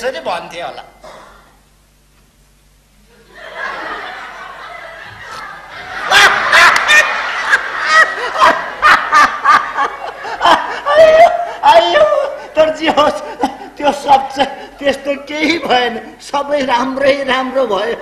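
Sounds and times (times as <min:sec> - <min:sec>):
man laughing loudly: 0:03.5 - 0:15.9.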